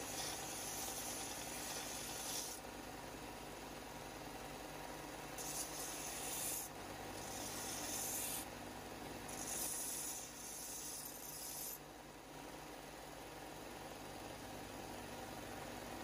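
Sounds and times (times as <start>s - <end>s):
metal grinding on belt sander: 0.0s - 2.6s, 5.4s - 8.5s, 9.3s - 11.8s.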